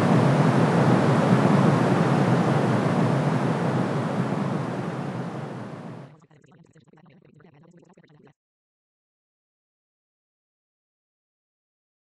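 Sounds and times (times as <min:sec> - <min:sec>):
rushing white noise hiss: 0:00.0 - 0:06.1.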